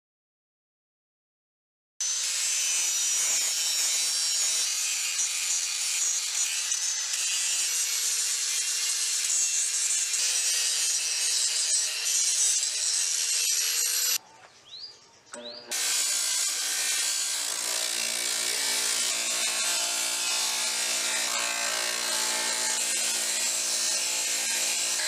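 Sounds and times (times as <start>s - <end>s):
tool scraping and rubbing: 2.2s - 14.2s.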